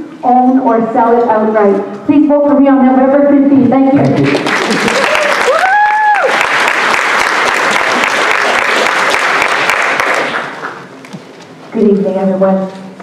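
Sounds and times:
audience applauding: 0:04.2 - 0:10.9.

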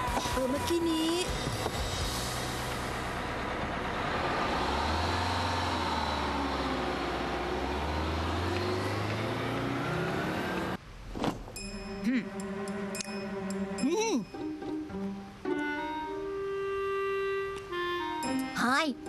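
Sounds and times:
car engine passing: 0:00.0 - 0:13.8.

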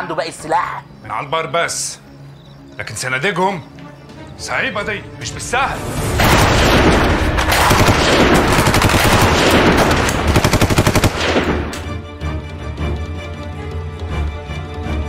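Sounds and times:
low background music: 0:00.0 - 0:15.0
automatic gunfire: 0:06.2 - 0:11.9.

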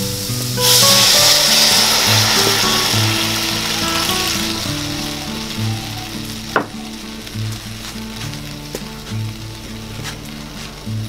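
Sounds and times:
coconut milk sizzling in a wok: 0:00.0 - 0:11.0
soft background music: 0:00.0 - 0:11.0
sharp pop: 0:06.5 - 0:06.9.

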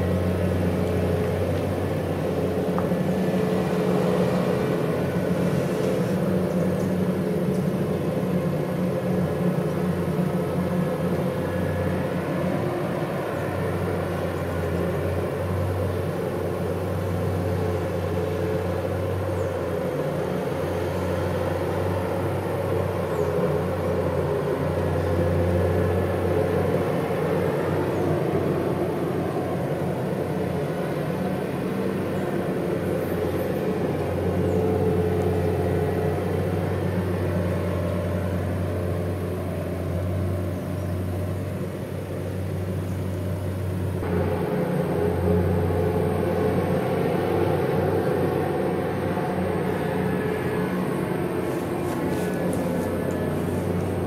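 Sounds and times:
diesel engine droning: 0:00.0 - 0:54.0.

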